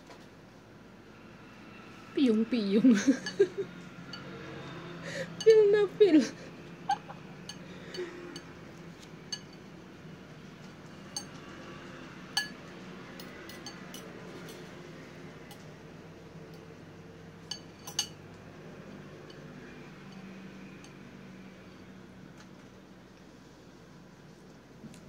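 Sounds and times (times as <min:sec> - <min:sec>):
low room hum: 0:00.0 - 0:25.0
fork clinking on ceramic bowl: 0:09.3 - 0:09.6, 0:11.0 - 0:11.4, 0:12.4 - 0:12.6, 0:13.2 - 0:14.1, 0:17.4 - 0:18.2.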